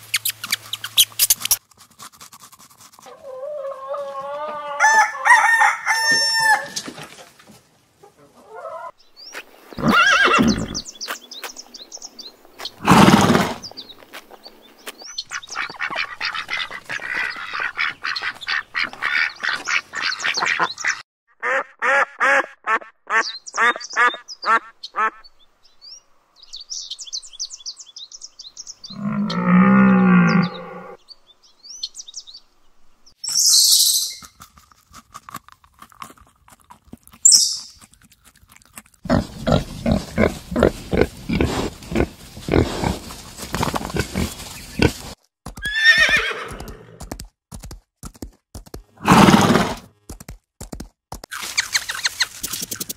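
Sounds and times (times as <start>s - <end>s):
piglets grunting and squealing: 39.1s - 43.1s.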